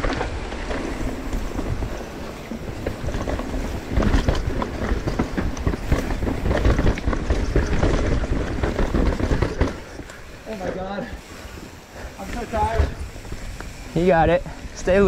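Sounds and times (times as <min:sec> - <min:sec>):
wind buffeting microphone: 0:00.0 - 0:10.4
bike clattering over bumps: 0:00.0 - 0:15.0
tyres rumbling over dirt: 0:00.0 - 0:15.0.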